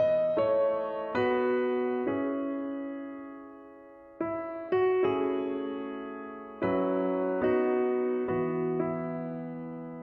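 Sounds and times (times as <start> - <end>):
slow piano music: 0.0 - 10.0.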